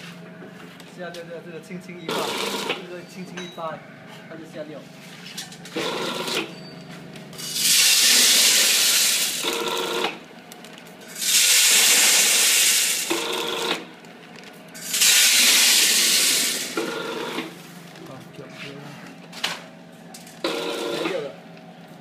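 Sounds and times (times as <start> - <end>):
low machine hum: 0.0 - 22.0
packing machine hissing rush: 7.4 - 10.0, 11.0 - 13.8, 14.8 - 17.4.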